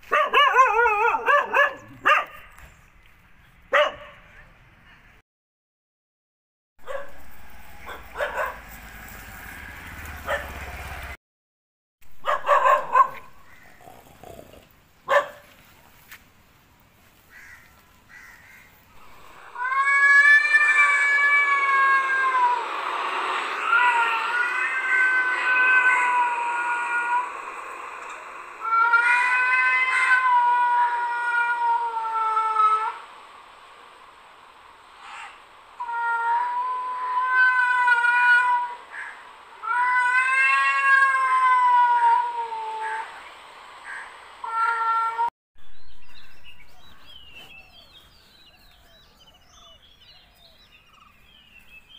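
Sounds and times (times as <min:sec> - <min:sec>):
dog bark: 0:00.0 - 0:02.5, 0:03.7 - 0:04.3, 0:06.8 - 0:07.2, 0:07.8 - 0:08.7, 0:10.2 - 0:10.6, 0:12.2 - 0:13.4, 0:15.1 - 0:15.5
cat meowing: 0:19.3 - 0:22.6, 0:23.5 - 0:33.0, 0:35.0 - 0:43.2.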